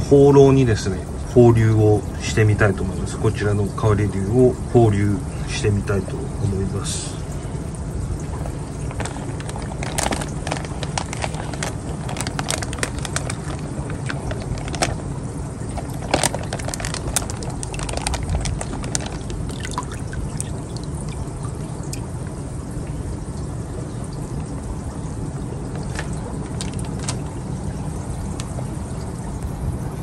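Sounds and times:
low hum: 0.0 - 30.0
water pouring and splashing: 0.0 - 30.0
plastic bag crackling: 8.4 - 21.3, 25.7 - 28.6.

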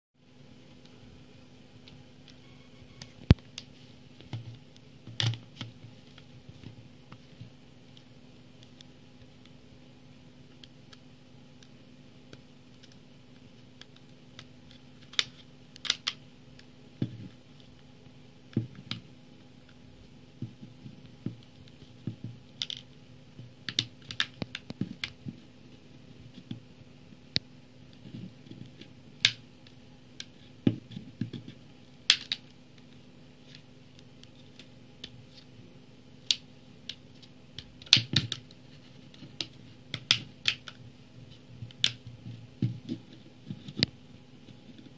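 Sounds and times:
plastic clips clicking and snapping: 13.8 - 16.2, 32.1 - 32.5, 36.2 - 38.6, 39.4 - 40.8, 41.7 - 42.0.

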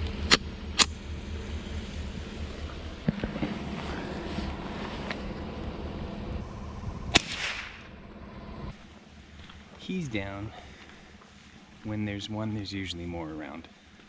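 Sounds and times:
truck engine idling: 0.0 - 12.7
rifle shot with echo: 7.1 - 7.9.

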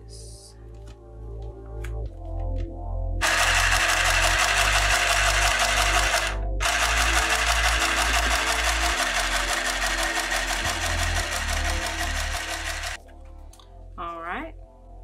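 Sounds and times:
sewing machine clattering: 3.2 - 13.0.

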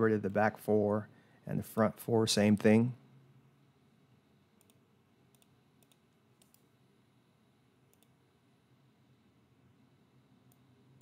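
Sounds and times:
faint low hum: 0.0 - 11.0
computer mouse clicks: 4.6 - 6.7, 7.9 - 8.2.

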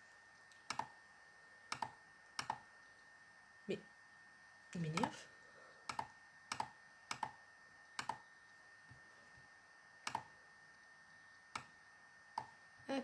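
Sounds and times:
computer mouse clicks: 0.4 - 0.9, 1.7 - 2.6, 5.8 - 7.4, 8.0 - 8.2, 10.0 - 10.3, 11.5 - 11.8.

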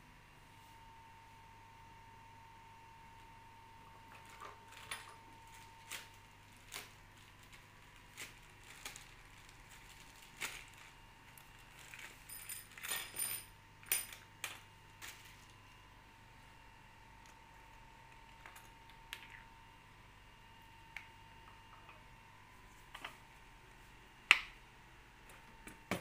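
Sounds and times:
faint high hum: 0.0 - 26.0
metal hardware rustling in plastic bag: 4.2 - 13.5, 15.0 - 15.5.

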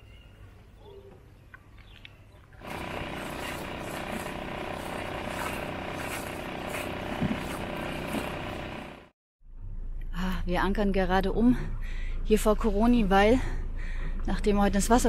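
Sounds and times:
water splashing: 2.6 - 8.6
small motor running: 2.6 - 9.1.

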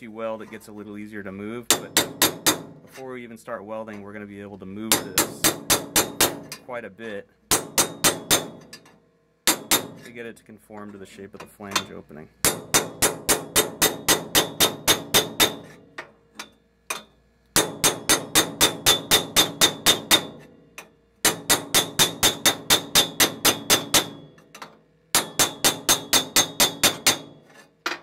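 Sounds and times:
hammer striking steel bar: 1.7 - 3.0, 4.9 - 6.6, 7.5 - 8.9, 9.5 - 10.1, 11.8 - 28.0.

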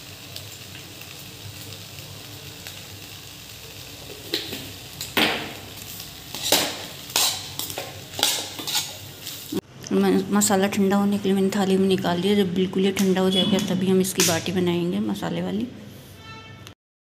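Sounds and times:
food sizzling in a pan: 0.0 - 9.7
spoon scraping a pan: 6.3 - 9.4.

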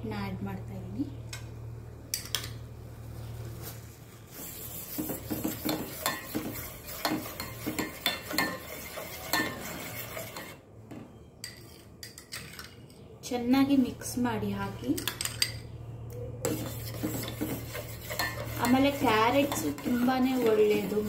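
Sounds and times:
spoon clinking and scraping pan: 4.9 - 10.6, 16.5 - 21.0.

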